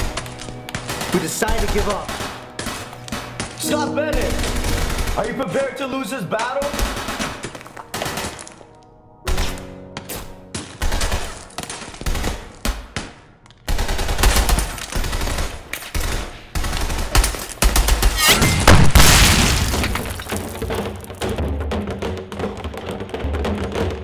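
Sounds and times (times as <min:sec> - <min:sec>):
gunfire shots and bursts: 0:00.7 - 0:03.6, 0:06.6 - 0:08.6, 0:10.6 - 0:18.2.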